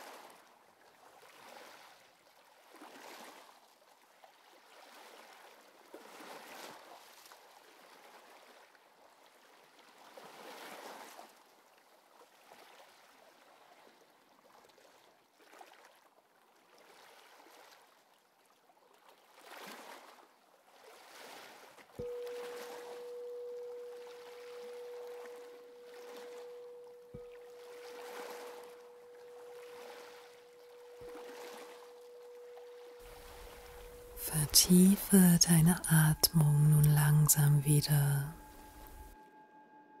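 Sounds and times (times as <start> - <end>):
faint sea waves washing in: 22.0 - 39.2.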